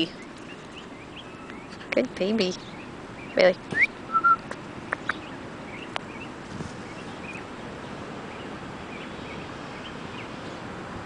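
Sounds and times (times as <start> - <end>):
outdoor background noise: 0.0 - 11.0.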